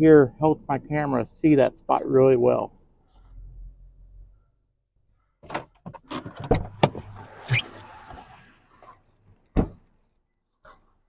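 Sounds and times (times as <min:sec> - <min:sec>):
truck door clicks and knocks: 0:09.6 - 0:09.8
truck door thumping shut: 0:09.6 - 0:09.8.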